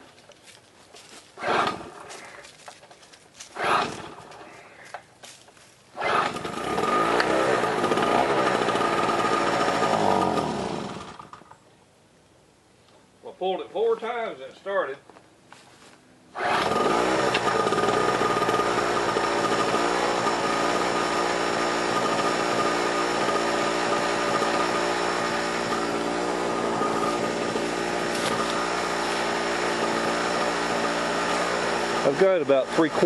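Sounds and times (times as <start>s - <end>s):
portable generator running: 1.4s - 2.4s, 3.5s - 4.5s, 6.0s - 11.4s, 16.4s - 33.0s.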